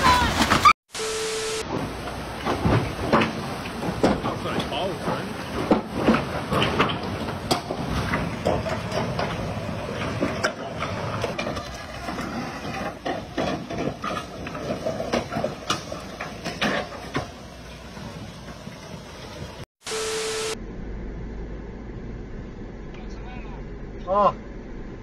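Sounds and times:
floodwater rushing: 0.0s - 10.4s.

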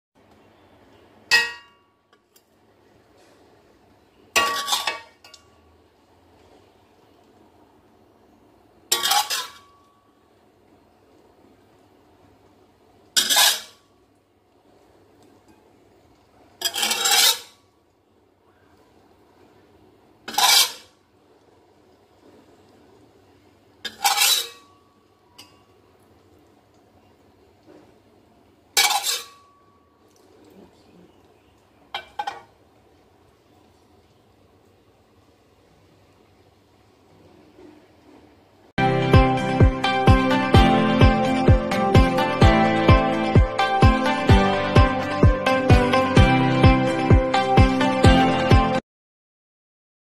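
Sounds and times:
metal spoon scraping bowl: 4.4s - 5.4s, 8.9s - 9.8s, 13.2s - 13.8s, 16.6s - 17.6s, 20.3s - 20.9s, 23.9s - 24.8s, 28.8s - 29.5s.

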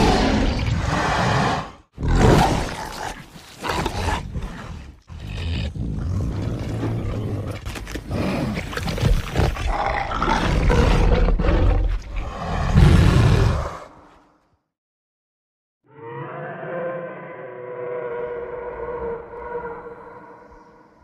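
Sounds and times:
dinosaur roaring: 9.7s - 13.9s, 15.9s - 20.9s.

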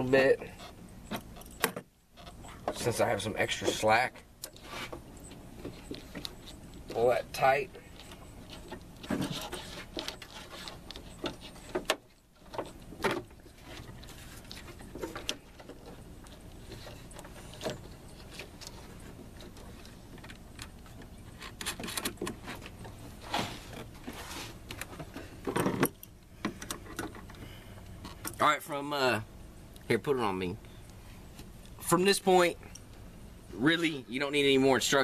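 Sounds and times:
low steady background noise: 0.0s - 35.0s
cable handling clicks and rustles: 0.6s - 28.4s.

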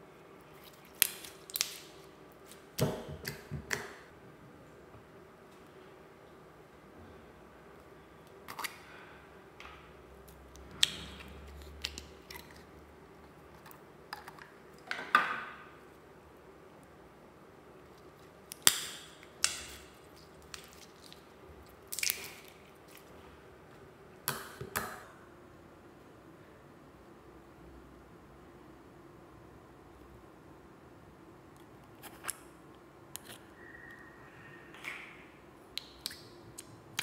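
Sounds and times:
slime popping and squelching: 18.5s - 23.1s.

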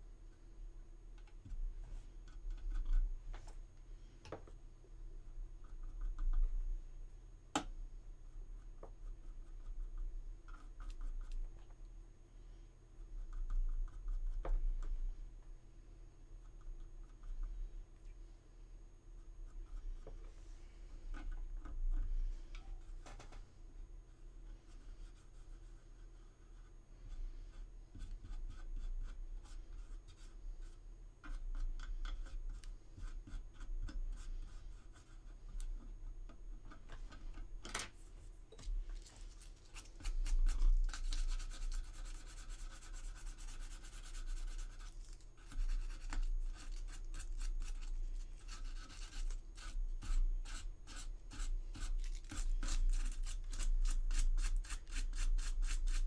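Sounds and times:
sandpaper scratching on resin: 39.2s - 56.0s.

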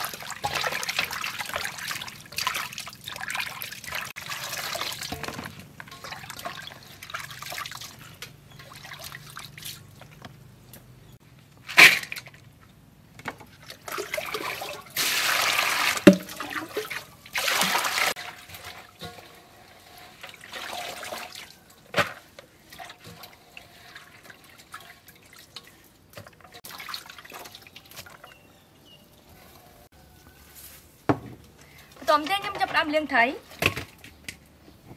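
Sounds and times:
water splashing in metal bowl: 0.0s - 9.6s, 13.6s - 28.3s.

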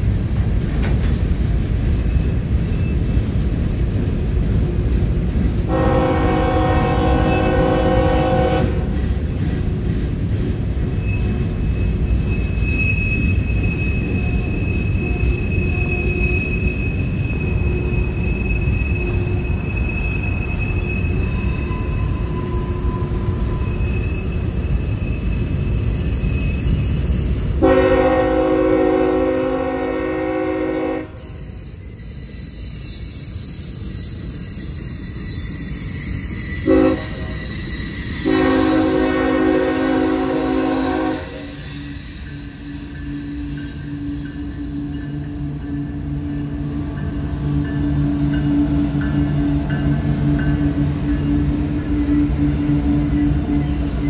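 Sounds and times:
freight train rumbling over rails: 0.0s - 54.0s
high wheel squeal: 2.0s - 3.3s, 10.8s - 27.6s, 31.2s - 54.0s
locomotive air horn: 5.7s - 9.0s, 27.6s - 31.3s, 36.6s - 37.4s, 38.2s - 41.7s.

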